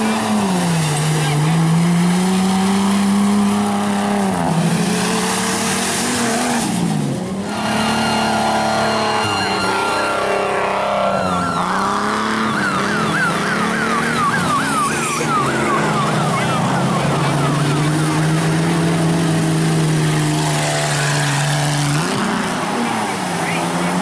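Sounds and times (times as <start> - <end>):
vehicle engines running: 0.0 - 24.0
siren sweeping up and down: 7.4 - 22.2.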